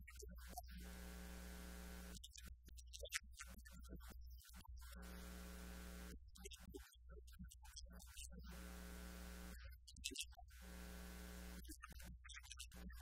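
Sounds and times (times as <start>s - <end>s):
electrical mains hum: 0.8s - 2.2s, 5.0s - 6.2s, 8.5s - 9.6s, 10.6s - 11.6s
buzzy hissing: 8.5s - 9.6s.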